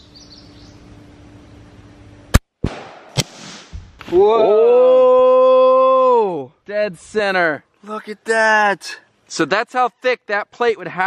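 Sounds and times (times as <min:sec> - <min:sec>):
rifle shots: 0:02.6 - 0:03.8
man exclaiming whoa: 0:04.1 - 0:06.5.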